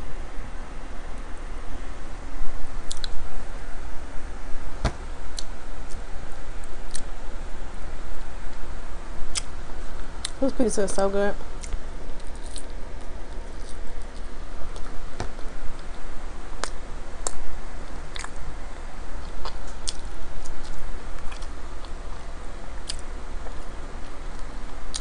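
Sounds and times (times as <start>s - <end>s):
chewing food: 19.2s - 22.0s.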